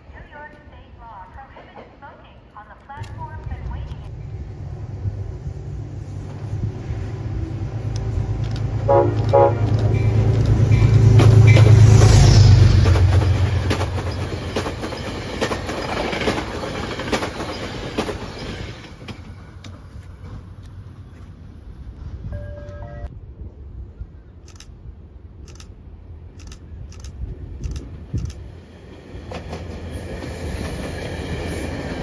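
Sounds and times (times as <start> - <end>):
deep train rumble: 0.0 - 32.0
wheels clicking over rail joints: 7.9 - 11.8, 12.9 - 20.8
train horn toots: 8.8 - 11.9.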